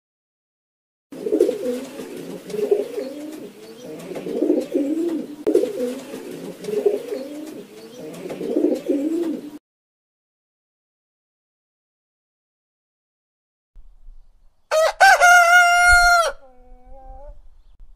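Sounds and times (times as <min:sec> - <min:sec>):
pigeon cooing: 0:01.1 - 0:09.6, 0:15.1 - 0:17.5.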